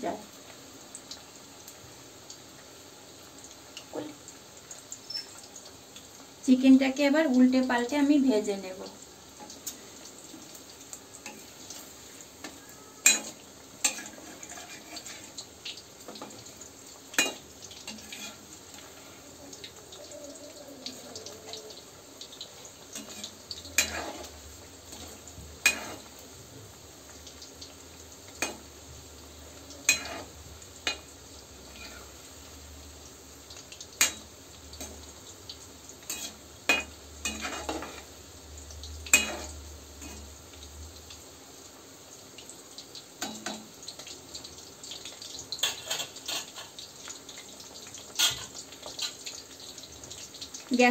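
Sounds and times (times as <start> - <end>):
food sizzling in hot oil: 0.0 - 50.9
metal spatula scraping pan: 13.0 - 15.4, 17.2 - 19.2, 23.0 - 24.4, 29.9 - 30.3, 36.1 - 38.0, 45.6 - 46.8.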